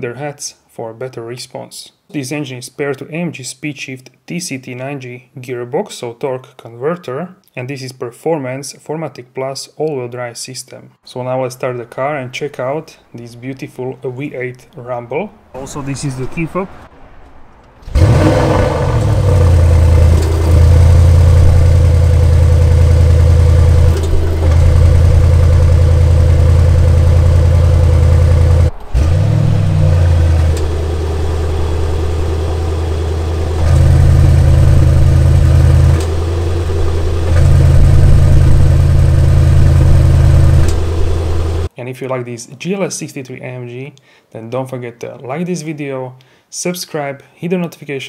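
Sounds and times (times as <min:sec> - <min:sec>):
car engine starting and idling: 0:14.5 - 0:41.7.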